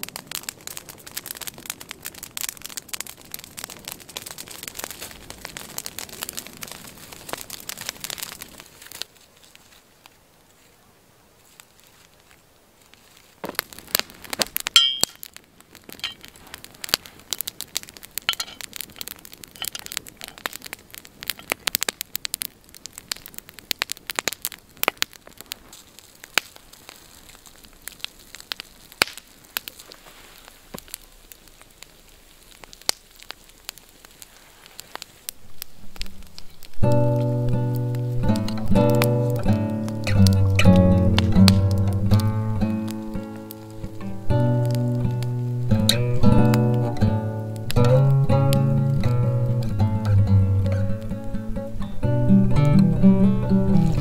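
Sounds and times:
wood fire crackling and popping: 0:00.0 - 0:54.0
metallic clinks: 0:14.8 - 0:15.2, 0:18.3 - 0:18.6.

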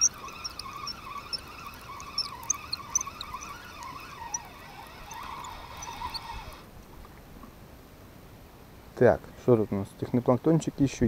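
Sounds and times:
fishing reel whirring: 0:00.0 - 0:06.7.

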